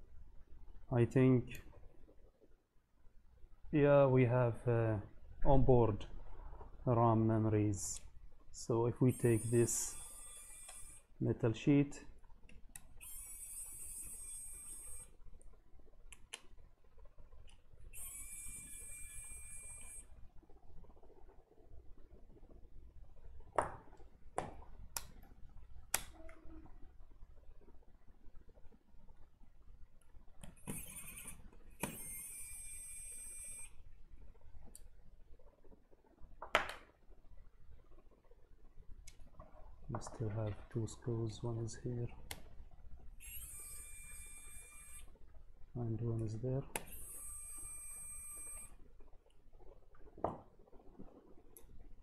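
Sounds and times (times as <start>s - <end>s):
electric screwdriver whining: 9.0s - 11.1s, 13.0s - 15.2s, 17.9s - 20.1s, 30.5s - 33.8s, 43.2s - 45.1s, 46.8s - 48.8s.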